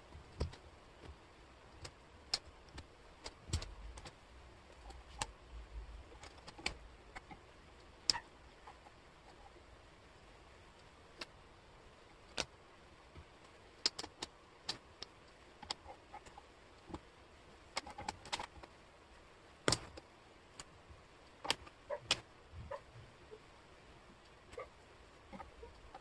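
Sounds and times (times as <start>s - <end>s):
wooden puzzle pieces clicking: 13.8s - 17.0s, 17.8s - 18.7s.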